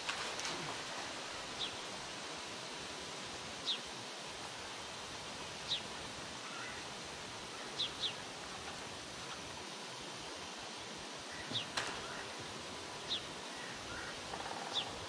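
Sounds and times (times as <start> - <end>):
steady outdoor hiss: 0.0 - 15.0
small bird chirping: 13.1 - 15.0.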